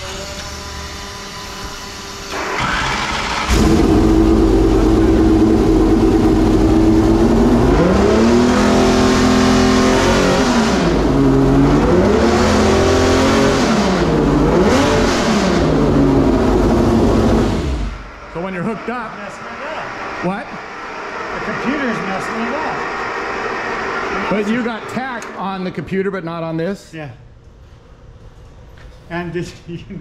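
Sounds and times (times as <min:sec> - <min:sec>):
race engine starting and revving: 0:02.3 - 0:18.3, 0:18.9 - 0:25.4.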